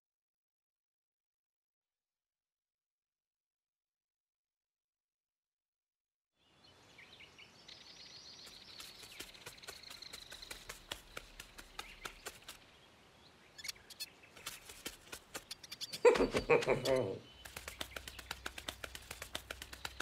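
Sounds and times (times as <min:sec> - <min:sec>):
high bird chirps: 0:07.1 - 0:20.0.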